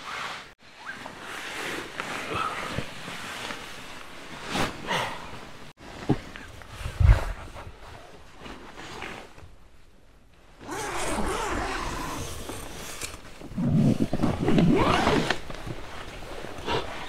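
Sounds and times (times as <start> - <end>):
rustling of tent fabric: 0.0 - 17.0
tent zipper being pulled: 10.6 - 17.0.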